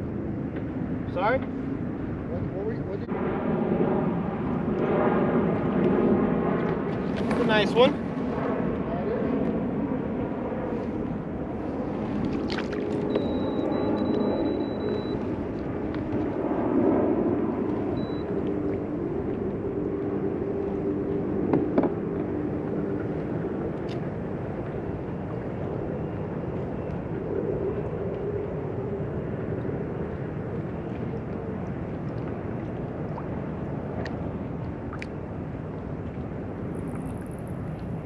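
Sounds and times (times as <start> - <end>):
wind and water noise: 0.0 - 38.0
faint low hum: 12.4 - 16.2, 17.5 - 38.0.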